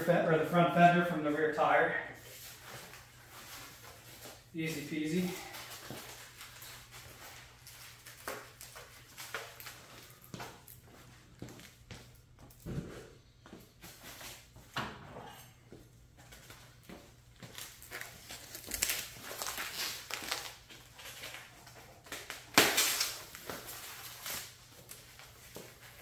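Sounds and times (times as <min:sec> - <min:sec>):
plastic wrap rustling and crinkling: 0:02.2 - 0:11.8, 0:17.4 - 0:26.0.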